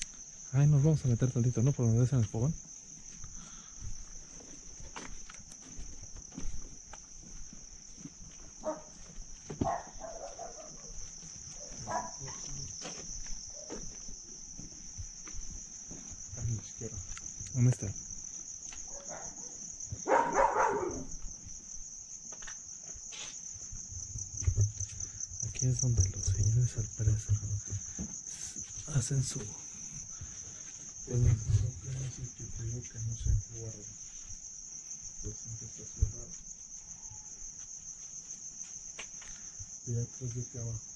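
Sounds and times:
crickets chirping: 0.0s - 40.9s.

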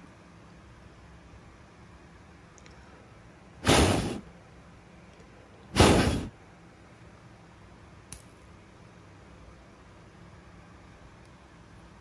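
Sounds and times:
breath puffs on microphone: 3.6s - 4.2s, 5.8s - 6.3s.

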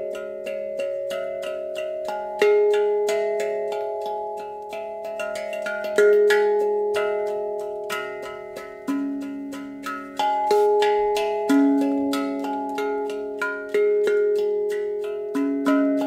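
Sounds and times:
steel hand drum notes: 0.0s - 16.0s.

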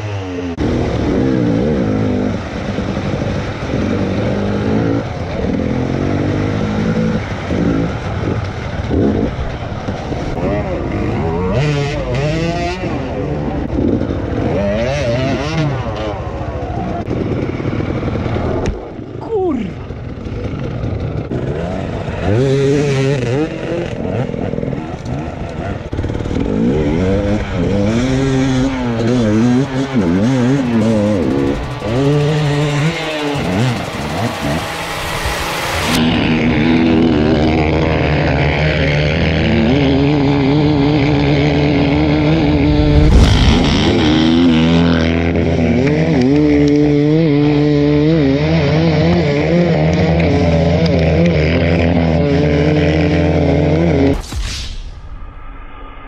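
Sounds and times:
second bike engine running steadily: 0.0s - 43.2s
dirt bike engine revving: 0.0s - 54.2s
loud bang: 42.5s - 45.2s, 54.2s - 56.0s.

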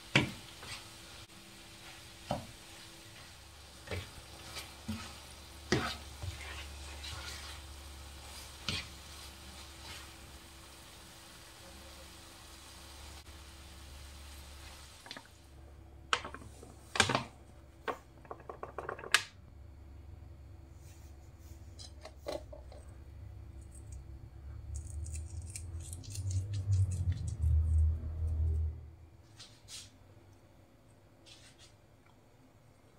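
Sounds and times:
meat frying in a pan: 0.0s - 15.6s.

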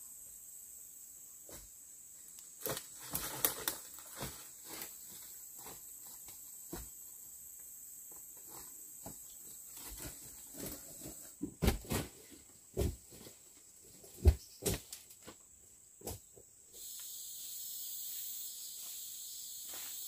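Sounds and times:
high insect buzz: 15.8s - 20.0s.

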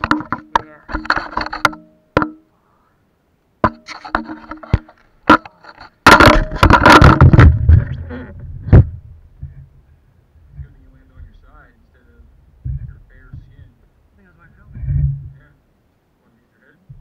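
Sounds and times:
camera rubbing against clothing: 0.0s - 1.7s, 3.7s - 8.9s.

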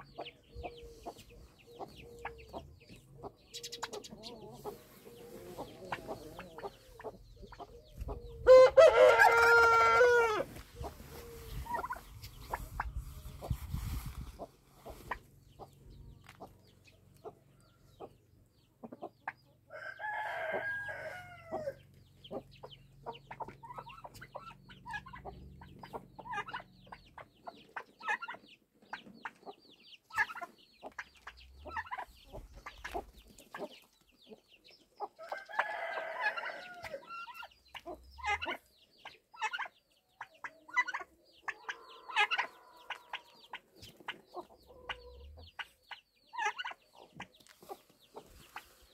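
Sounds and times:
chickens clucking: 0.0s - 48.9s
rooster crowing: 8.5s - 10.5s, 19.7s - 21.8s, 35.2s - 37.1s.

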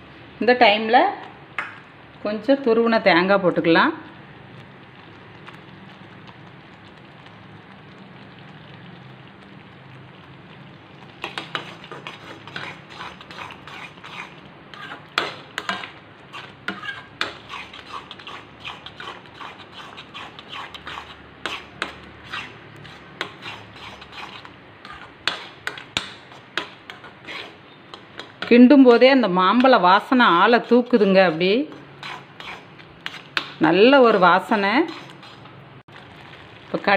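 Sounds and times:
spoon scraping metal pan: 11.2s - 35.6s.

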